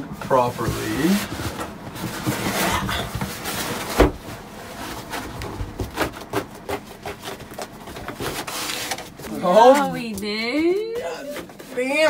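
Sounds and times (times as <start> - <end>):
foam sheet rubbing and scraping: 0.3 - 7.5, 8.1 - 9.6.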